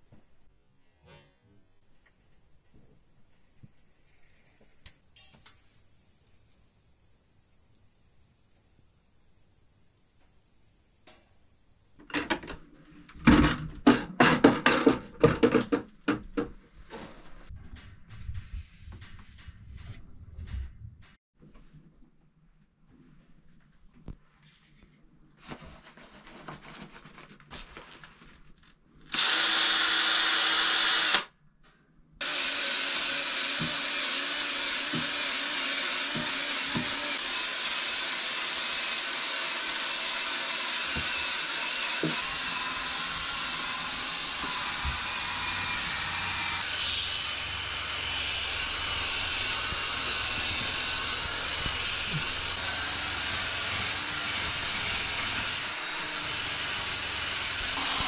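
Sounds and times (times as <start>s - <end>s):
power tool sanding wood: 29.2s - 31.2s, 32.2s - 58.0s.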